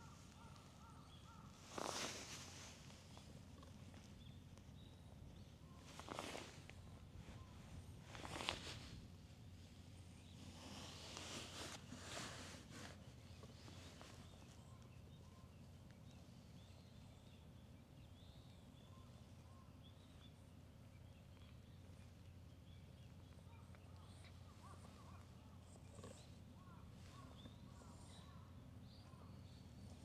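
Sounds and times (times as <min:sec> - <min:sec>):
birds chirping: 0:00.0 - 0:08.9.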